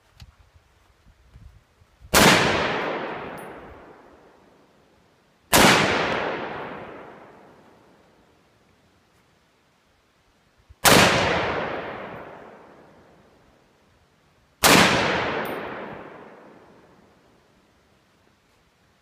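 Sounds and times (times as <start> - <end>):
rifle shots: 2.1 - 4.0, 5.5 - 7.4, 10.8 - 12.7, 14.6 - 16.7
gunshot echo: 2.2 - 4.0, 5.5 - 7.4, 10.8 - 12.8, 14.6 - 16.8.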